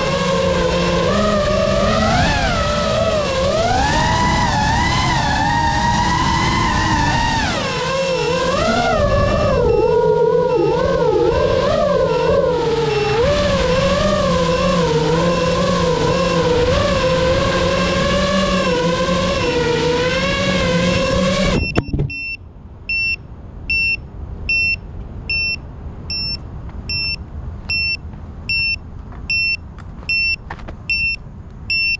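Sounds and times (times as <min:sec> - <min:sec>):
drone beeper short beeps: 0:09.4 - 0:13.3, 0:21.6 - 0:31.9.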